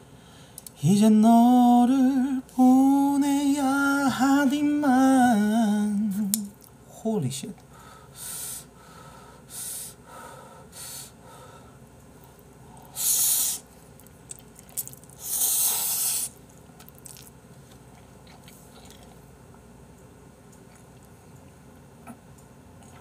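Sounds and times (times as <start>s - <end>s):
wet chewing: 13.9s - 15.3s, 16.3s - 19.2s
person slurping noodles: 15.2s - 16.4s.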